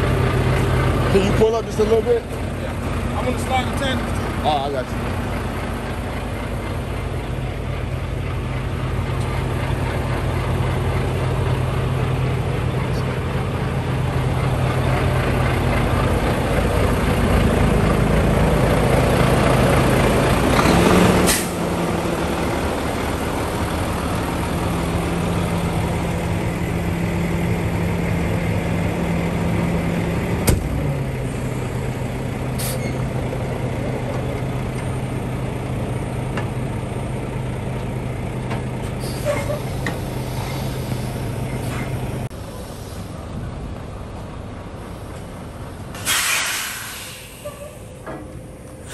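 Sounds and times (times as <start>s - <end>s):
diesel truck engine revving: 0.0s - 48.9s
air brake hiss: 21.3s - 21.6s, 32.6s - 32.9s, 39.0s - 41.1s, 42.6s - 43.2s, 45.9s - 48.0s.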